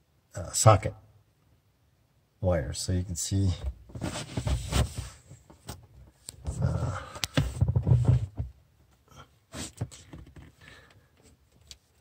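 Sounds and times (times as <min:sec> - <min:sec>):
rustling and knocks: 0:03.6 - 0:06.6, 0:07.3 - 0:08.6
person breathing hard and straining: 0:06.5 - 0:08.1, 0:09.1 - 0:11.2.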